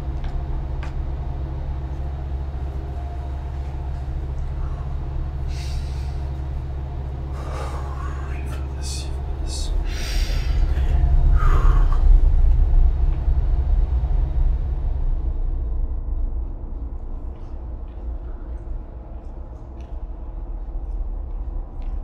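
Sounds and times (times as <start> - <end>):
deep rumble: 0.0 - 22.0
man breathing heavily and gasping: 7.3 - 12.2.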